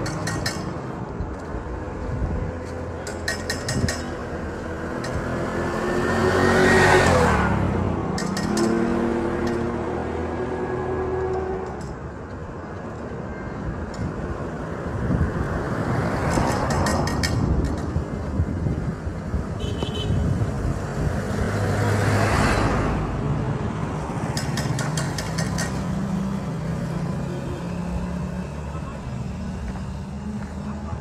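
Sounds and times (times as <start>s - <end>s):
road traffic passing: 0.0s - 31.0s
truck passing: 20.2s - 31.0s.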